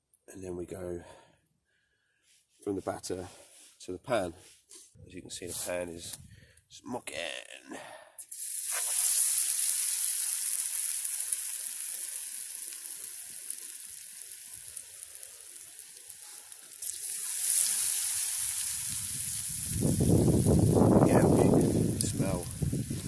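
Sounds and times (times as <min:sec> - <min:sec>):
fish sizzling in hot oil: 0:08.3 - 0:23.0.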